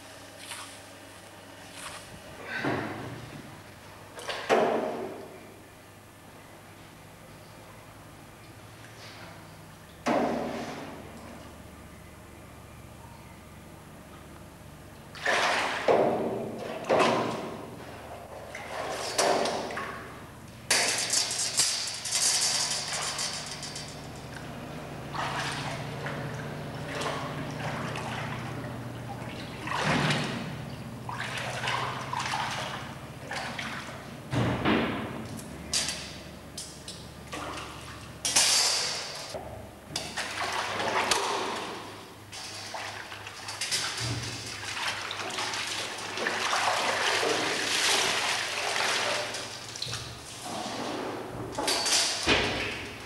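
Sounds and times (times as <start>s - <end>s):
liquid sloshing and splashing: 15.1s - 20.2s, 24.2s - 34.1s, 40.0s - 51.1s
running liquid: 25.0s - 34.0s, 40.1s - 50.7s.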